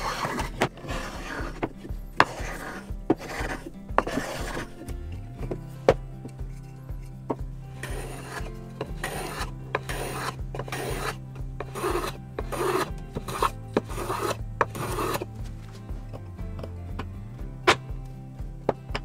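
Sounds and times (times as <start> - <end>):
hand plane rasping on wood: 0.0 - 5.6, 7.8 - 15.4.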